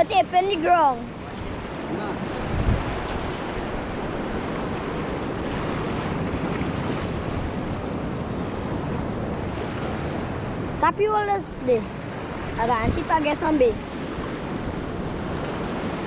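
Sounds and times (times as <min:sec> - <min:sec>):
wind on microphone: 0:00.0 - 0:16.0
small waves washing on sand: 0:00.2 - 0:16.0.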